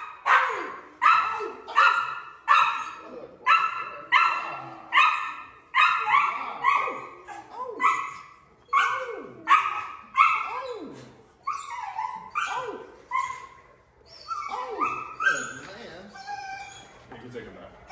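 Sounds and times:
dog barking: 0.0s - 10.8s, 14.5s - 15.5s.

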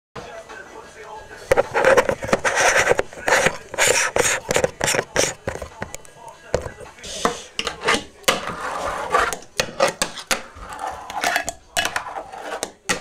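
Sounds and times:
fingerboard rolling on wood: 7.8s - 13.0s.

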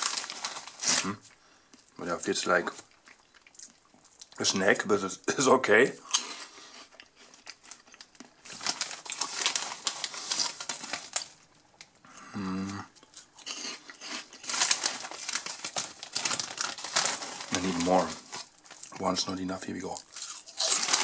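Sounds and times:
snack bag crinkling: 0.0s - 1.4s, 6.1s - 11.9s, 13.0s - 21.0s.

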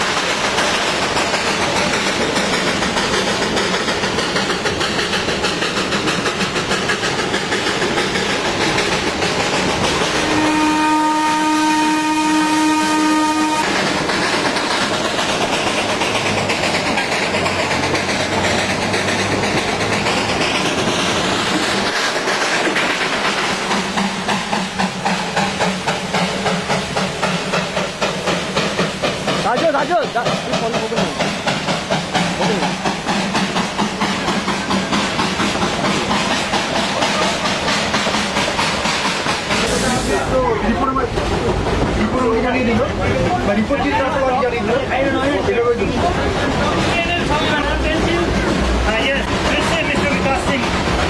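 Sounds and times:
steam locomotive exhaust chuffs: 0.0s - 51.0s
steam train running gear: 0.0s - 51.0s
steam whistle chord: 10.4s - 13.6s.

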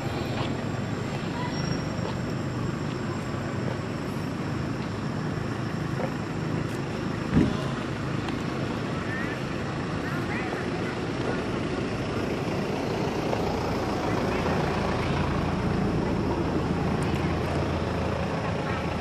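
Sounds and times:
low rumbling background noise: 0.0s - 19.0s.

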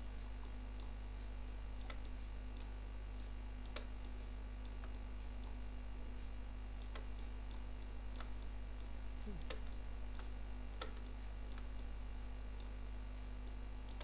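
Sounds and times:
electrical mains hum: 0.0s - 14.0s
computer mouse clicks: 1.8s - 2.7s, 9.5s - 11.9s.

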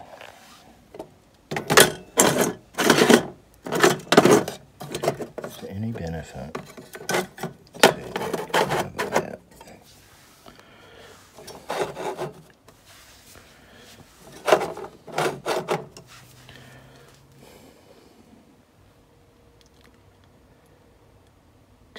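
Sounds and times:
motors scraping on steel floor: 11.2s - 13.4s, 14.0s - 16.5s.

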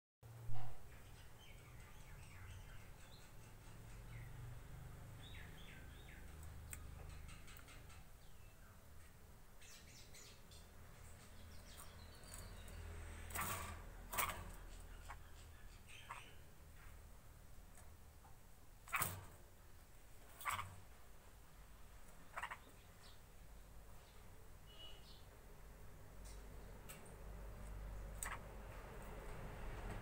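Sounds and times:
bird chirping: 0.6s - 17.1s, 18.8s - 21.0s, 22.0s - 27.0s.

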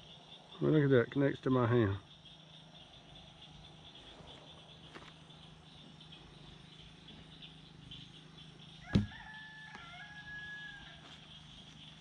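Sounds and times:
insects chirring: 0.0s - 12.0s
rooster crowing: 8.8s - 11.1s
sharp thump: 8.9s - 9.2s.

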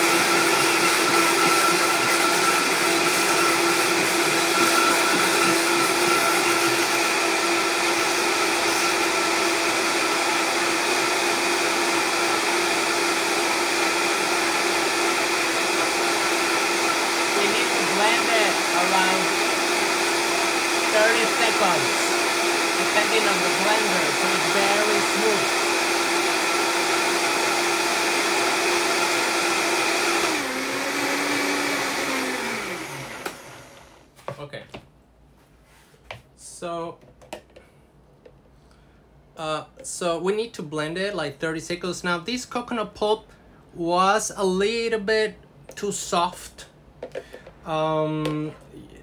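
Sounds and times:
blender motor whining: 0.0s - 34.1s.

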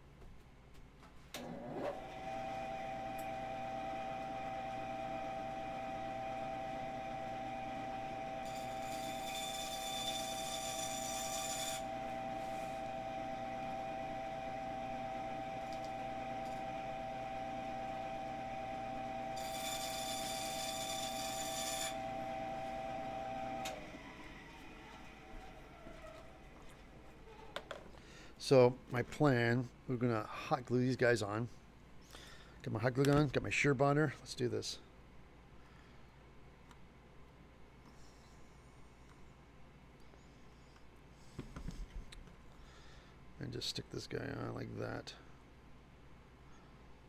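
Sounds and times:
bandsaw cutting pipe: 1.4s - 26.3s
bandsaw humming: 2.0s - 26.6s.

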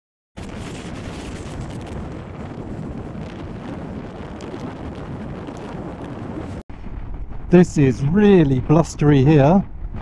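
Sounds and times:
wind buffeting microphone: 0.4s - 10.0s.

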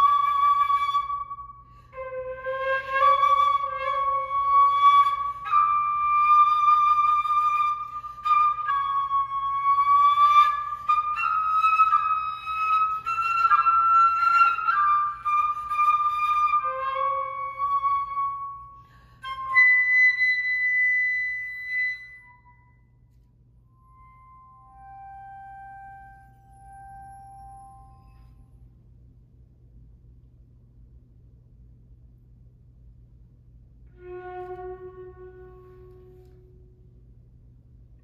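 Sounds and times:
solo flute melody: 0.0s - 28.6s, 33.8s - 37.1s.

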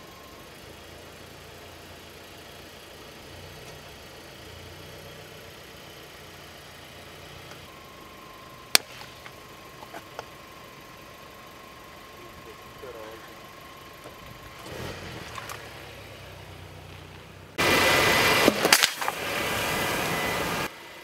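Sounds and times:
car engine idling: 0.0s - 21.0s
water balloon popping: 18.4s - 19.2s.

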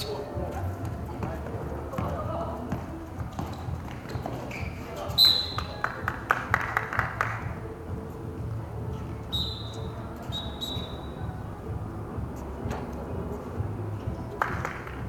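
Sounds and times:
basketball bouncing on concrete: 0.8s - 4.7s.

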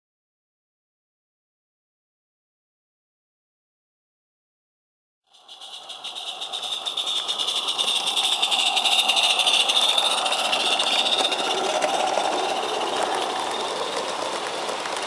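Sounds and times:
carriage wheels rattling on track: 5.3s - 15.0s
steam locomotive beats and hiss: 5.3s - 15.0s.

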